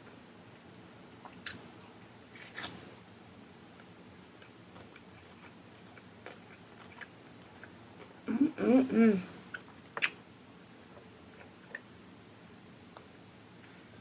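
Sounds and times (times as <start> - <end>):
child chewing: 0.6 - 2.9, 3.7 - 8.2.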